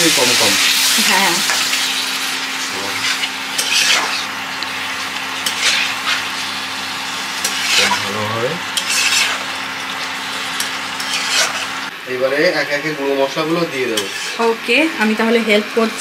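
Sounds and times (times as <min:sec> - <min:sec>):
chicken sizzling in a pan: 0:00.0 - 0:16.0
spatula scraping the pan: 0:00.2 - 0:11.9, 0:13.8 - 0:14.5.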